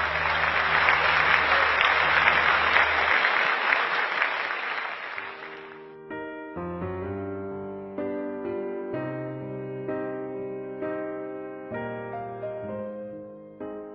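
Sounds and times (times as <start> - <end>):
audience applauding: 0.0 - 5.9
piano notes: 0.0 - 13.9.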